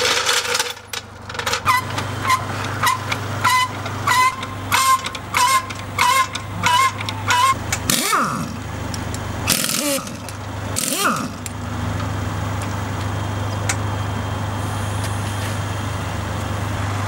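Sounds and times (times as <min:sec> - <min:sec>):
trolley jack pumping: 0:00.0 - 0:12.8
click and short squeak: 0:01.6 - 0:08.2.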